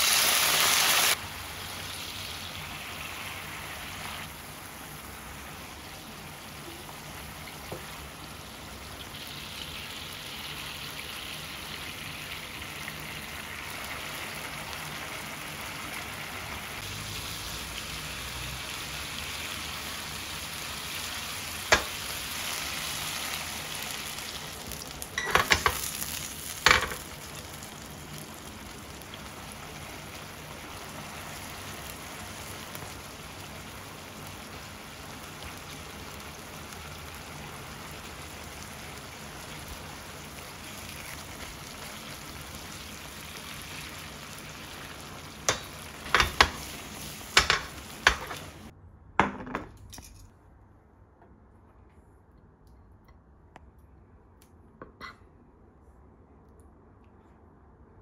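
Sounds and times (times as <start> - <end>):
sauce sizzling in frying pan: 0.0 - 48.7.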